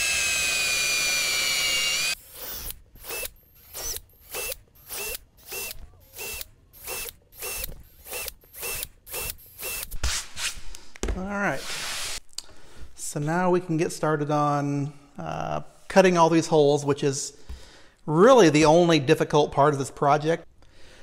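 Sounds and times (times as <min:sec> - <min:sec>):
cordless drill drilling into plywood: 0:00.0 - 0:10.0.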